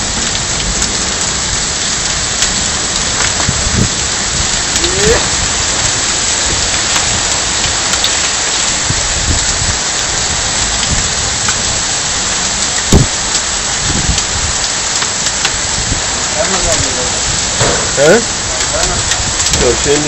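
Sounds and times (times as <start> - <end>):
heavy rain hissing: 0.0 - 20.0
sharp thump: 17.6 - 18.2.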